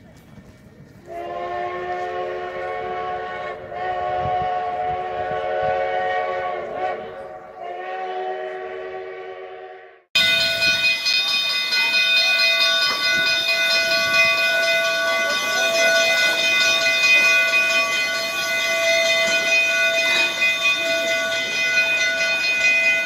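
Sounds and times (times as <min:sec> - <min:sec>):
steam locomotive whistle: 0:01.0 - 0:11.3, 0:12.4 - 0:23.0
steam hissing: 0:10.2 - 0:23.0.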